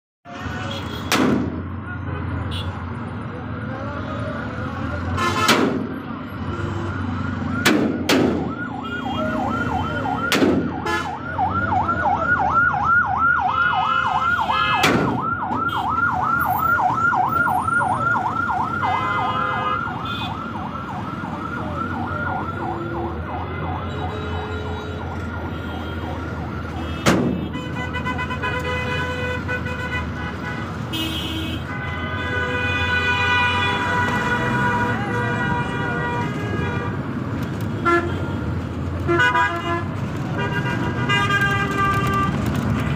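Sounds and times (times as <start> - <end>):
heavy traffic rumble: 0.2 - 42.9
vehicle horns: 0.3 - 2.9, 5.0 - 7.1, 10.8 - 11.2, 18.8 - 20.4, 22.7 - 42.9
ambulance siren yelping: 6.0 - 26.9.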